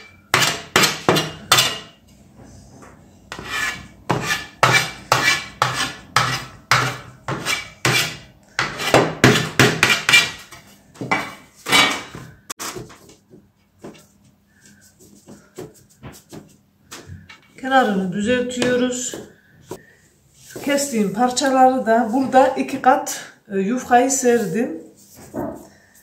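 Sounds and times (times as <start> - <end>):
metal blade chopping on metal tray: 0.0 - 2.0, 3.4 - 12.8.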